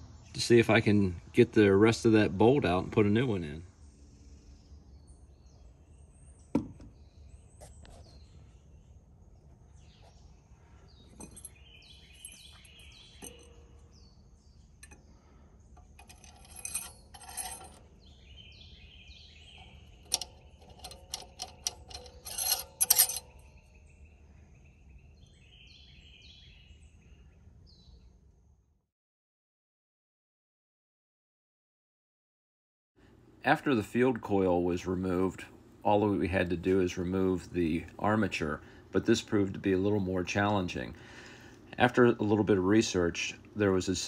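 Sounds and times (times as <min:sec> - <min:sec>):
small birds chirping: 0:00.0 - 0:28.5, 0:33.5 - 0:44.0
knock: 0:06.6 - 0:06.9
hand tools clinking on metal: 0:11.1 - 0:13.6, 0:15.8 - 0:18.0, 0:19.6 - 0:23.6.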